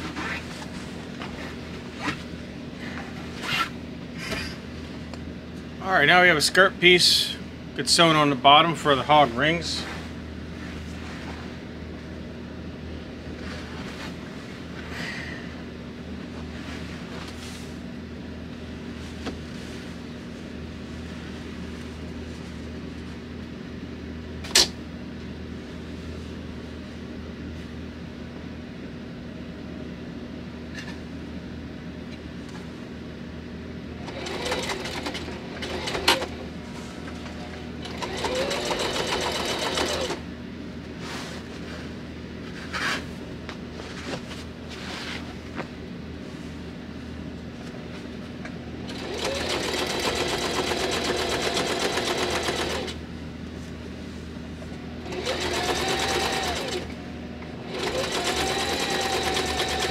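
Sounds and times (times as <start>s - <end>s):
steady low hum: 0.0s - 59.9s
sewing machine stitching: 34.0s - 36.4s, 37.8s - 40.2s, 48.9s - 53.0s, 55.1s - 56.9s, 57.6s - 59.9s.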